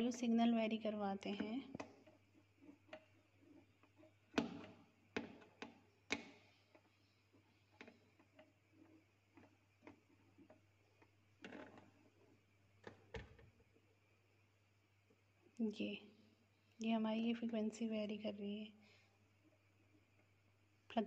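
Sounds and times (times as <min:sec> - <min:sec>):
low steady hum: 0:00.0 - 0:21.0
small clicks and taps: 0:01.2 - 0:14.0.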